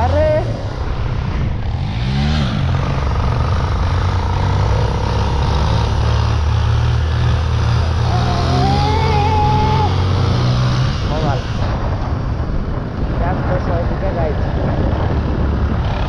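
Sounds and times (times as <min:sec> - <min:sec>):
motorcycle engine running: 0:00.0 - 0:16.0
road and wind noise: 0:00.0 - 0:16.0.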